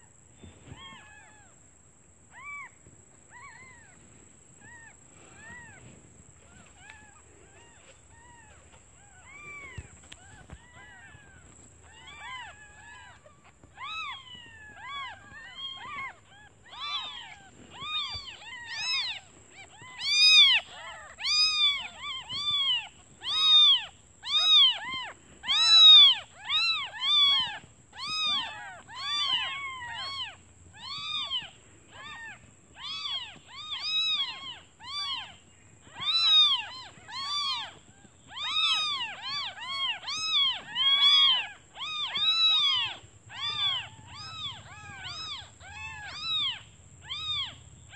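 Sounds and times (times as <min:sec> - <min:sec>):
kittens mewing: 0:03.3 - 0:47.9.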